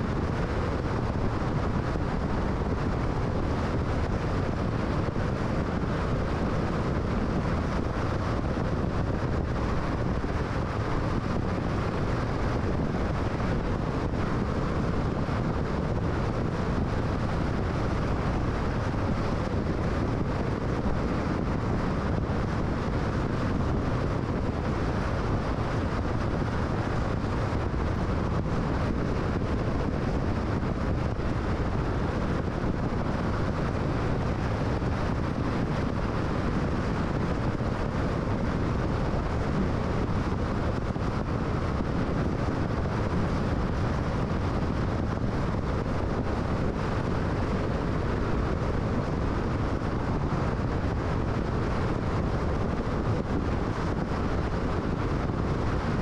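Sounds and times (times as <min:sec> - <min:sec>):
car road noise: 0:00.0 - 0:56.0.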